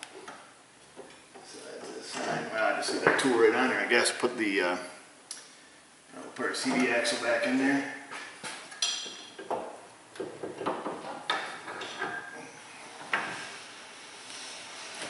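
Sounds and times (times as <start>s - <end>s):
metal clinks and knocks: 8.7s - 9.6s.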